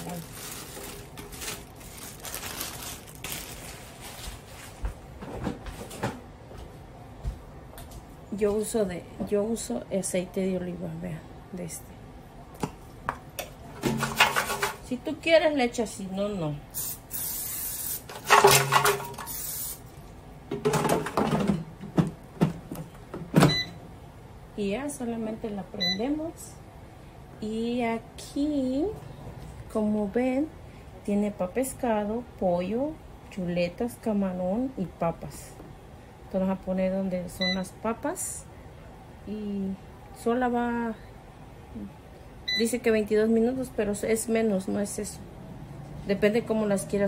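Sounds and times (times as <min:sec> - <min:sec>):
plastic bag crinkling: 0:00.0 - 0:04.9
aerosol spray hissing: 0:16.8 - 0:18.0
basket knocking and clattering: 0:20.5 - 0:23.6.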